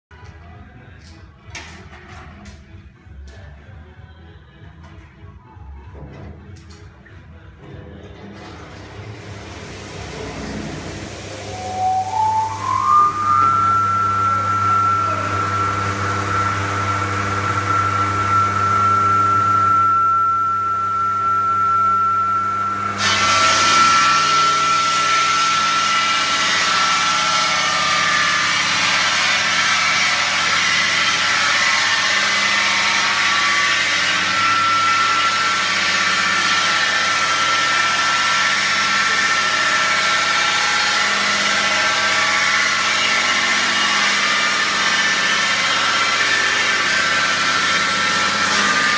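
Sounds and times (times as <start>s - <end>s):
masonry saw blade whining: 9.4s - 48.9s
saw grinding into brick: 10.1s - 48.9s.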